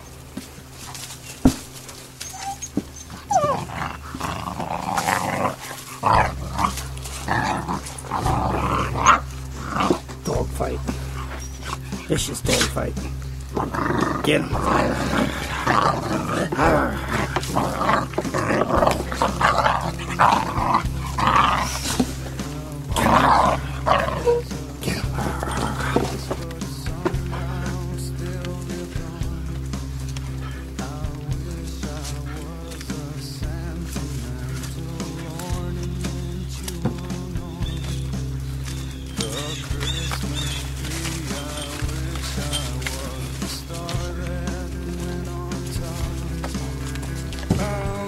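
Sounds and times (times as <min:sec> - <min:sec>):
background music with bass: 0:00.0 - 0:48.0
dogs growling and play-fighting: 0:00.0 - 0:48.0
dog whining: 0:01.2 - 0:12.1, 0:23.0 - 0:24.5.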